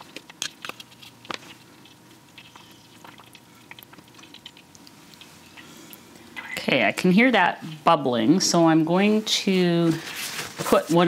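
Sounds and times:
food being wrapped: 0.0 - 6.4.

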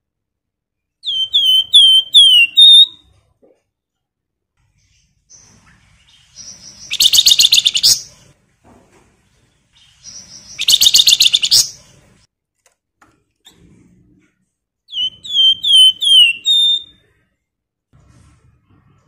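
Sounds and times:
bird chatter trills: 5.3 - 8.1, 9.8 - 11.8.

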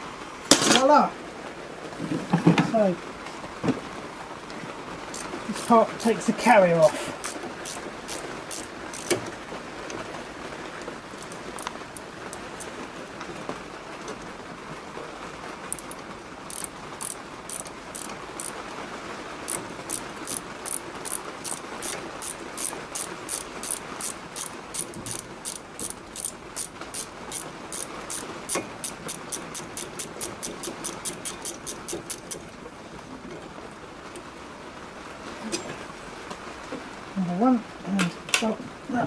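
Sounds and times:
socket ratchet clicking: 5.1 - 6.5, 7.2 - 9.2, 11.2 - 12.7, 15.7 - 18.6, 19.5 - 32.4.

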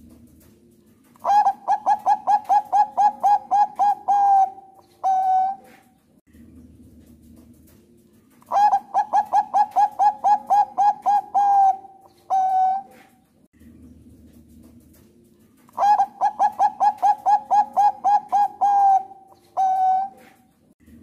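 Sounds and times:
dove cooing: 1.2 - 6.0, 8.4 - 13.3, 15.7 - 20.6.

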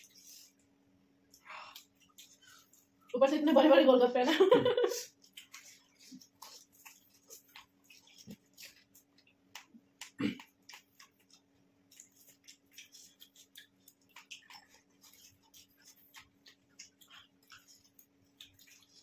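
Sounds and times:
faint steady hum: 0.0 - 19.0
wet slurping mouth sounds: 5.0 - 9.0, 9.6 - 19.0.

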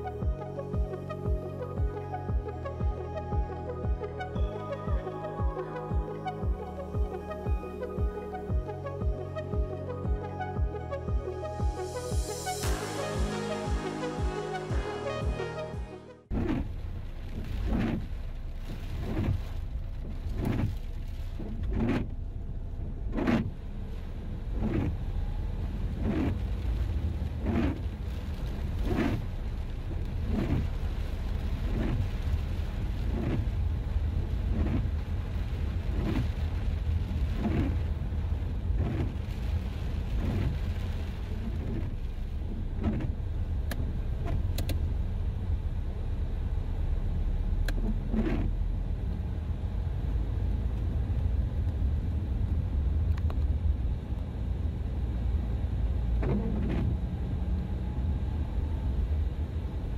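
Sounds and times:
regular sweeping sound: 4.0 - 16.3
car driving rumble: 16.2 - 59.9.

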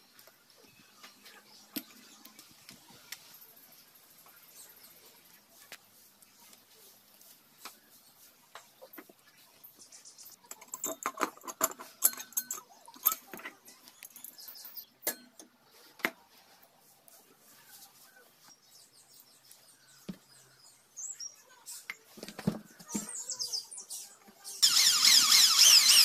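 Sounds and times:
metal engine parts clinking: 10.5 - 15.4.

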